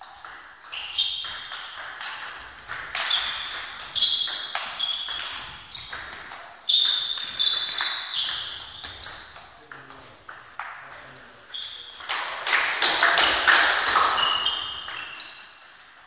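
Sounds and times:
table tennis ball hits: 0.0 - 16.0.

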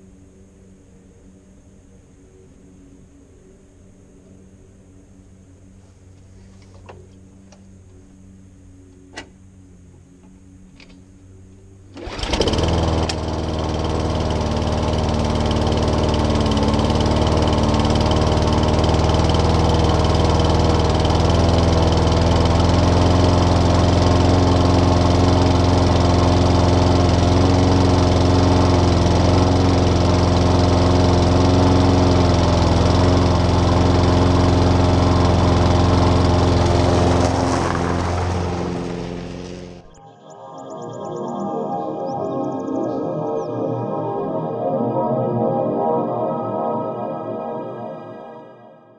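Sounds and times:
lawnmower engine running: 11.9 - 42.6.

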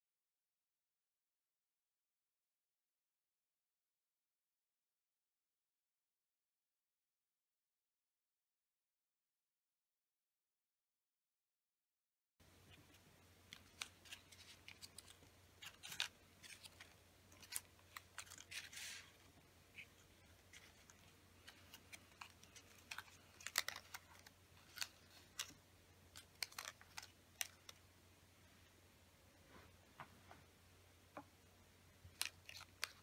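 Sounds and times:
paper brushing swish: 18.2 - 19.3.

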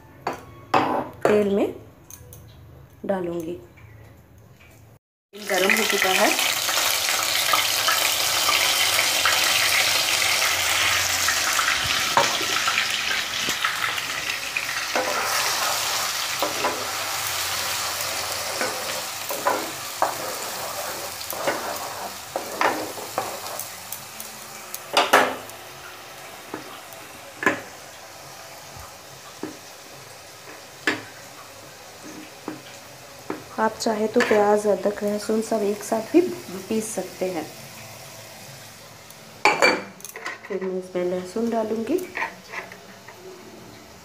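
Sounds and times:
onion paste sizzling in oil: 5.4 - 40.1.

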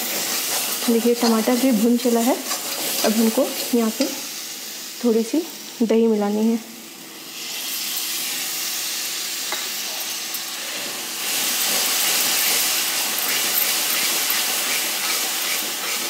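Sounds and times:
yogurt sizzling in hot oil: 0.0 - 16.0
spatula stirring: 11.6 - 16.0.

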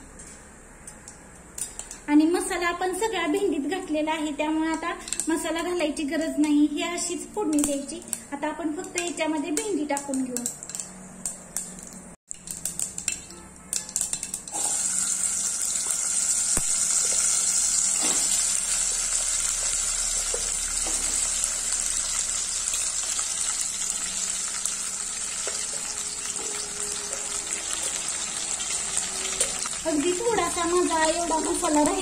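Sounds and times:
spices crackling in oil: 8.8 - 32.0
okra frying sizzle: 10.0 - 32.0.

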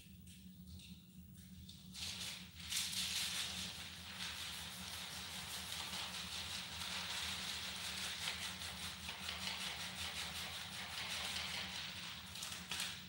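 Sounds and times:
plastic film crinkling: 12.2 - 13.0.

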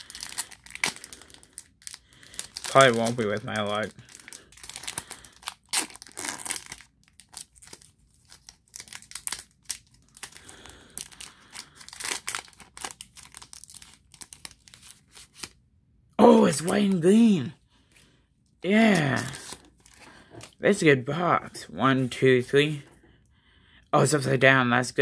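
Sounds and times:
foil wrapper crinkling: 0.0 - 15.6, 18.8 - 20.6.

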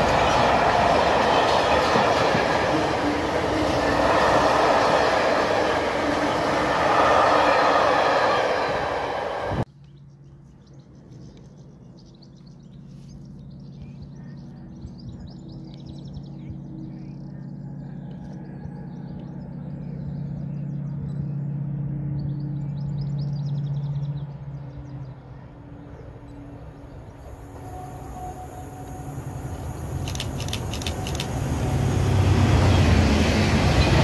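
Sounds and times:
freight train rattling past: 0.0 - 9.7, 26.5 - 34.0
locomotive drone: 0.0 - 9.7, 15.8 - 34.0.

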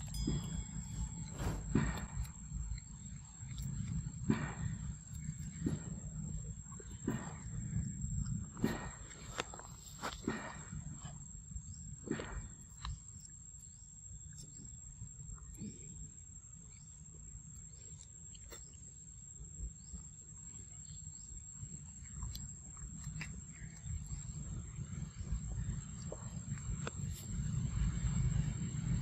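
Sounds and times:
low rumble: 0.0 - 12.7, 23.6 - 29.0.

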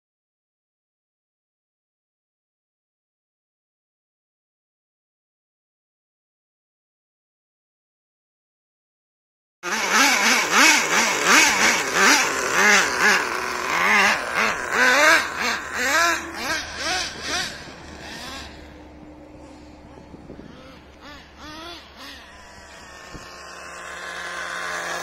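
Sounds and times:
model truck engine revving: 9.6 - 25.0.

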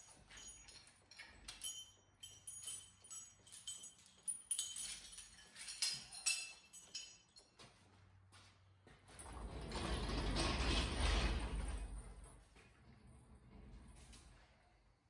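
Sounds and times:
chain and hooks clinking: 0.0 - 7.6.

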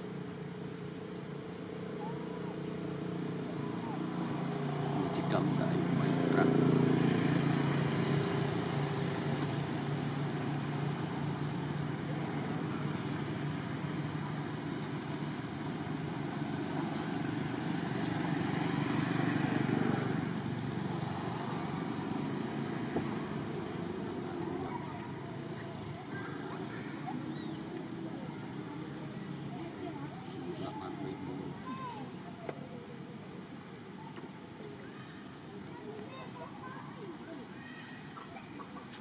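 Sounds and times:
vehicle engine drone: 0.0 - 33.8
vehicle passing: 3.7 - 31.9.

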